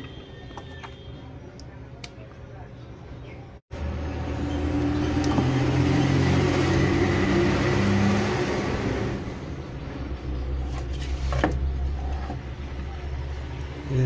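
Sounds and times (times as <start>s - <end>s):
engine passing by: 3.7s - 14.0s.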